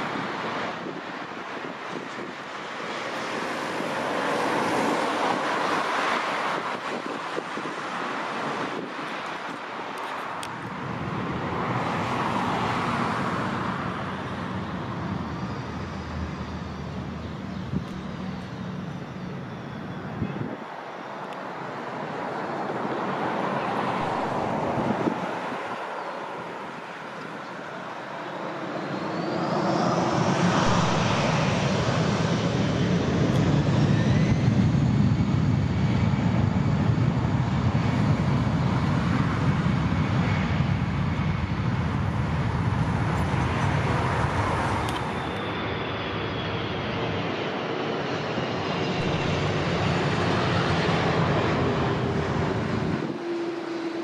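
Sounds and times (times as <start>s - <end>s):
jet engines spooling up: 11.0s - 20.6s, 22.8s - 54.0s.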